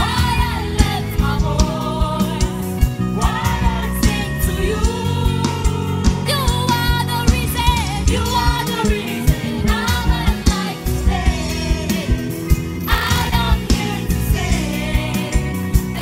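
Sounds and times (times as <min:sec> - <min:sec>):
woman singing into a microphone: 0:00.0 - 0:12.3
drum kit beat: 0:00.0 - 0:16.0
gospel band playing: 0:00.0 - 0:16.0.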